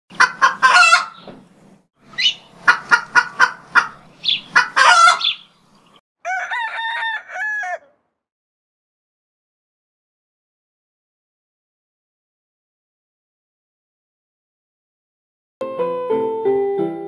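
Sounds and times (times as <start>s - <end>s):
chickens clucking: 0.1s - 6.0s
rooster crowing: 4.8s - 5.4s, 6.2s - 8.2s.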